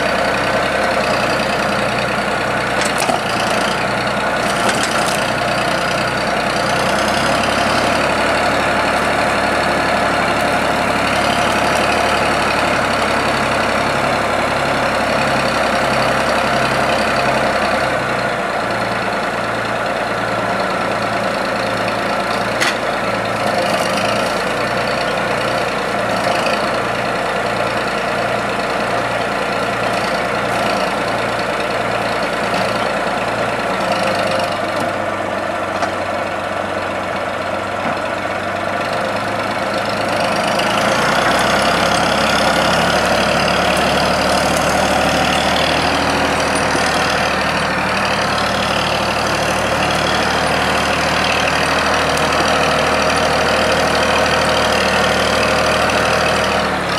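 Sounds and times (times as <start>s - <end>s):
engine running: 0.0s - 56.9s
logs knocking: 2.8s - 3.6s.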